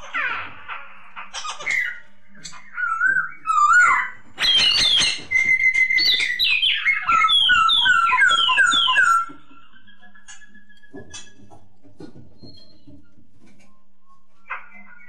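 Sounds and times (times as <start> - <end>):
bird singing whistled notes: 1.6 - 11.2.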